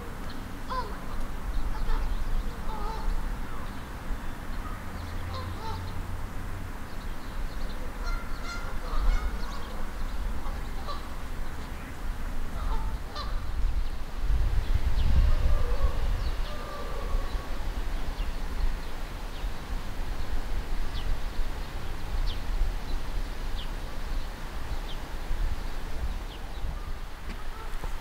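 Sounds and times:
geese honking: 0.7 - 1.1, 1.7 - 3.7, 4.6 - 6.0, 7.8 - 13.5, 15.3 - 17.4, 26.8 - 28.0.

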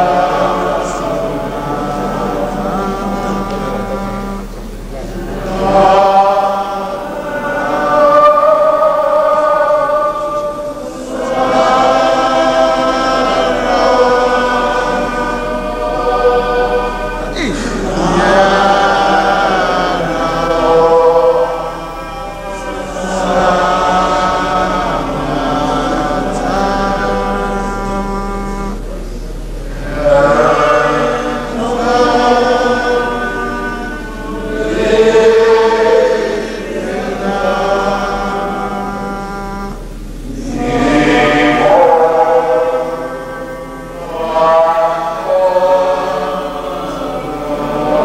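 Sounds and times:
group of voices chanting: 0.0 - 29.0
steady low hum: 0.0 - 48.0.

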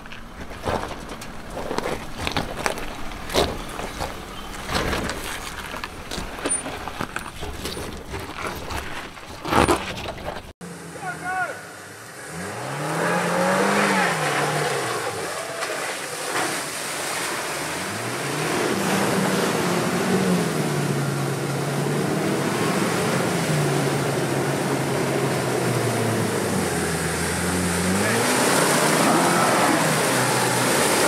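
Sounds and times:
engine revving: 10.6 - 31.0
water sloshing and splashing: 14.3 - 20.7.

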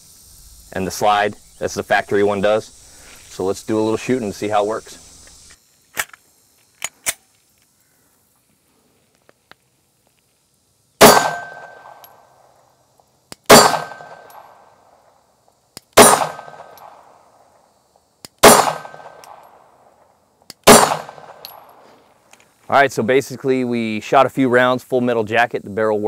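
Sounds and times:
pistol shots with ringing tail: 11.0 - 12.2, 13.5 - 14.7, 16.0 - 17.1, 18.4 - 19.6, 20.6 - 21.8.

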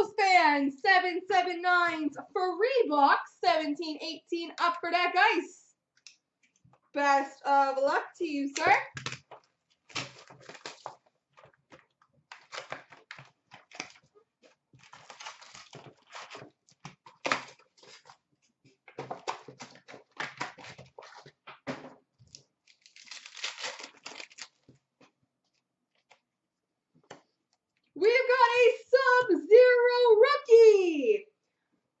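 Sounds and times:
plastic wrappers crinkling: 8.9 - 18.3, 22.2 - 24.8.

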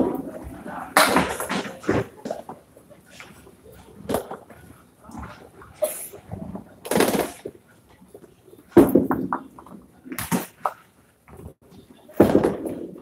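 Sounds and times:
bowling balls striking wooden lanes: 8.7 - 10.8.

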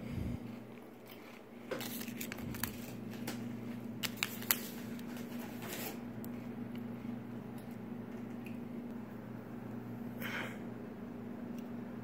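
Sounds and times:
steady low hum: 0.0 - 12.0
plastic bag crinkling: 1.2 - 6.0.

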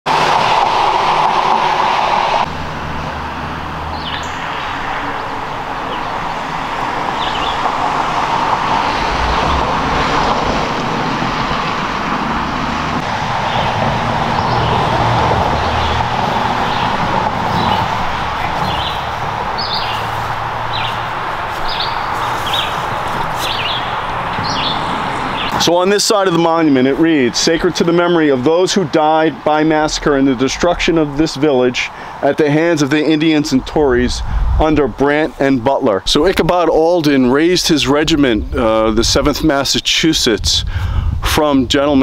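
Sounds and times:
road traffic rumble: 0.0 - 42.0
bird chirps: 3.9 - 4.8, 7.2 - 7.6, 16.6 - 25.6.

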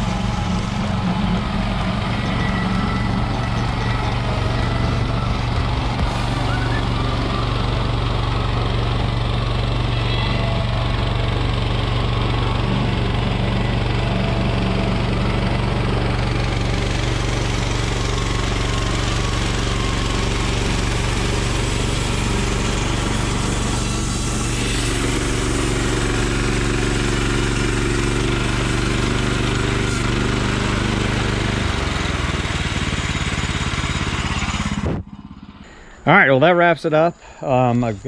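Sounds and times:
sawmill engine running: 0.0 - 38.0
band saw blade hissing: 12.9 - 31.3.

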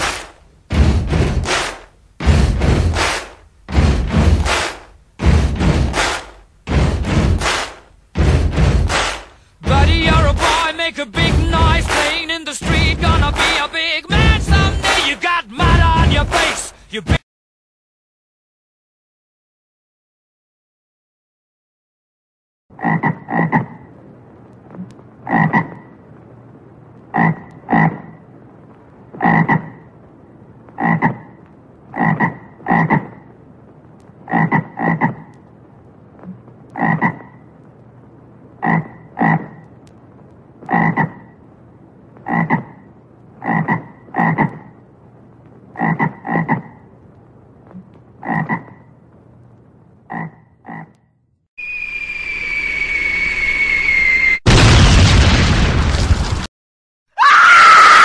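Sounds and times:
steady low hiss: 0.0 - 17.1, 23.5 - 50.4
frog croaking: 22.8 - 24.0, 24.7 - 26.0, 27.1 - 28.3, 29.1 - 29.9, 30.7 - 33.4, 34.2 - 35.5, 36.2 - 37.5, 38.6 - 39.7, 40.6 - 41.4, 42.2 - 44.8, 45.7 - 46.9, 47.7 - 49.0, 50.0 - 51.2.

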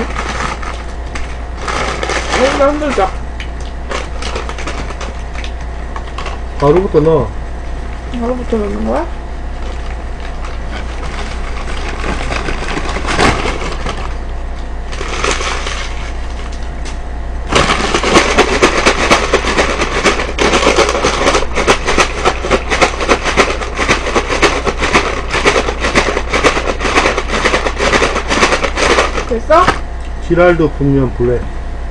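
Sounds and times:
fries shaken in paper bag: 0.0 - 3.2, 3.9 - 6.8, 9.6 - 14.2, 14.9 - 16.6, 17.5 - 29.8
paper bag rustling: 0.0 - 3.2, 9.6 - 14.2, 14.9 - 16.5, 17.5 - 29.3.

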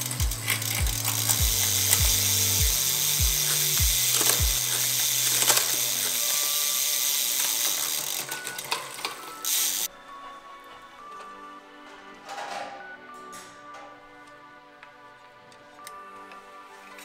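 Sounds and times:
bike chain running over cassette: 0.0 - 9.9
freewheel ratchet clicking: 0.0 - 9.9
background music beat: 0.0 - 17.0.

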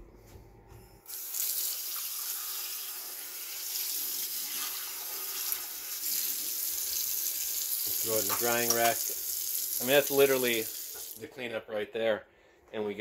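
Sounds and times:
faucet water running into sink: 1.1 - 11.2.

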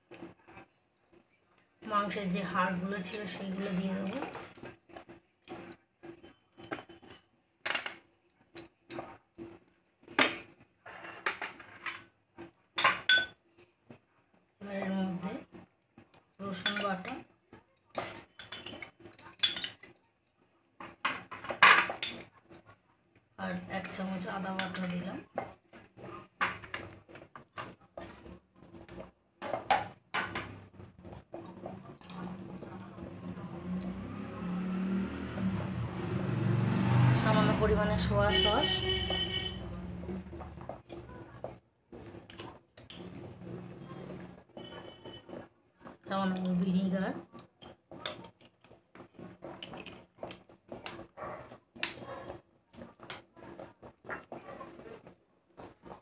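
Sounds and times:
cooking pot and utensils clinking: 10.1 - 12.1, 12.7 - 13.4, 16.4 - 17.2, 17.9 - 20.0, 20.8 - 22.7, 23.7 - 35.2.

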